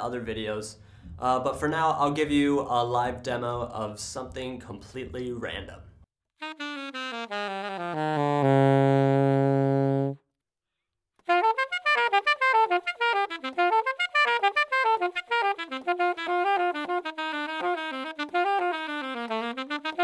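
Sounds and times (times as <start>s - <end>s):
solo saxophone: 6.4s - 10.3s, 11.2s - 20.0s.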